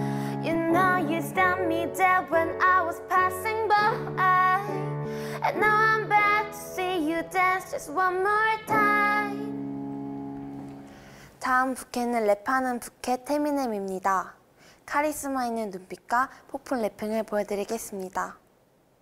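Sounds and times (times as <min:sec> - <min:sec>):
woman singing: 0:00.0 - 0:09.6
keyboard chords: 0:00.0 - 0:11.2.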